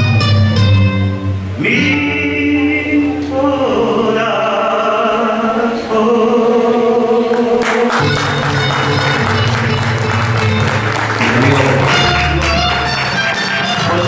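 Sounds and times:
low guitar accompaniment: 0:00.0 - 0:03.3, 0:07.9 - 0:14.0
man singing into microphone: 0:01.6 - 0:08.0, 0:11.2 - 0:14.0.

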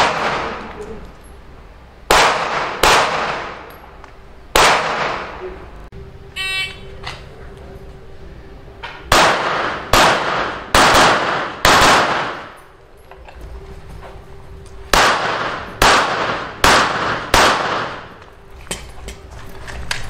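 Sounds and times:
pistol shots echoing: 0:00.0 - 0:00.8, 0:02.1 - 0:03.7, 0:04.5 - 0:05.4, 0:09.1 - 0:12.6, 0:14.9 - 0:18.2.

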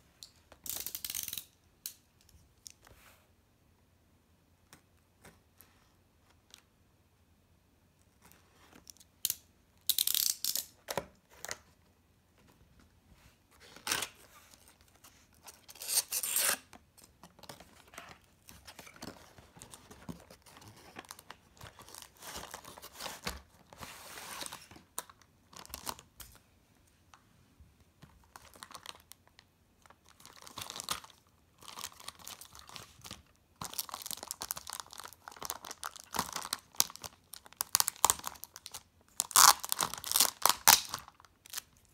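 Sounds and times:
tape slicing and tearing: 0:15.7 - 0:16.7.

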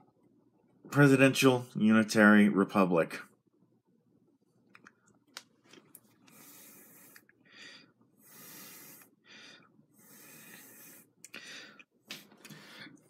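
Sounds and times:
person breathing softly: 0:06.2 - 0:13.0.

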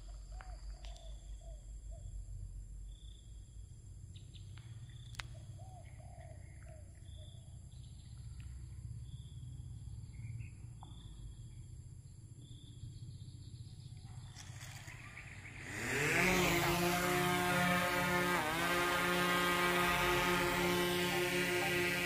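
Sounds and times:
drone propellers spinning up: 0:15.6 - 0:22.0.

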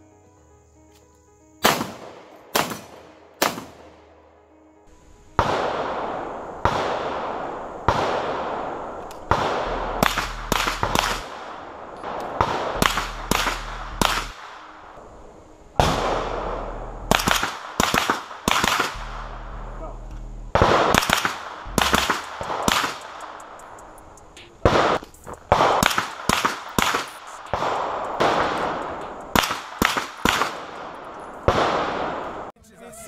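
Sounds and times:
background music: 0:00.0 - 0:33.0
handgun shots: 0:01.6 - 0:03.8, 0:09.3 - 0:11.3, 0:17.1 - 0:19.0, 0:29.4 - 0:30.6
gunshots with echoing tail: 0:01.6 - 0:04.2, 0:05.4 - 0:15.1, 0:15.8 - 0:32.5.

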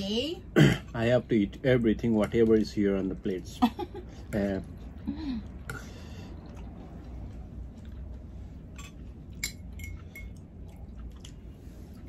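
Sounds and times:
utensils clinking against bowls: 0:08.8 - 0:10.4.

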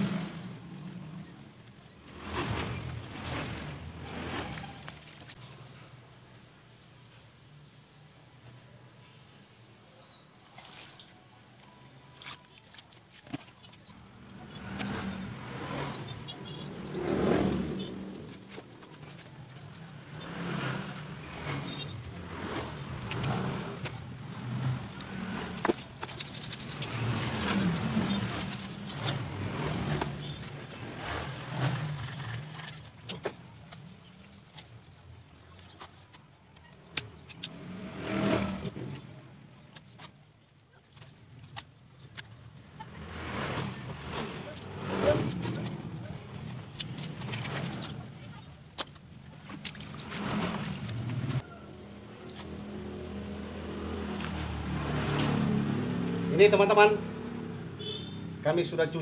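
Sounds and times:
small birds chirping: 0:00.8 - 0:55.5
clicks and rustles: 0:18.1 - 0:19.8, 0:21.4 - 0:37.6, 0:38.7 - 0:42.9, 0:43.6 - 0:51.4.

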